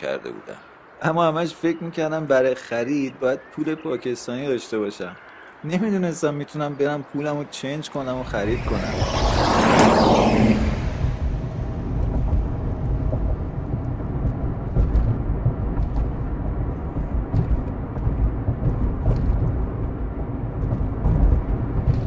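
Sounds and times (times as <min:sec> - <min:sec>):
road noise: 0:00.0 - 0:22.0
car engine rumble: 0:08.2 - 0:22.0.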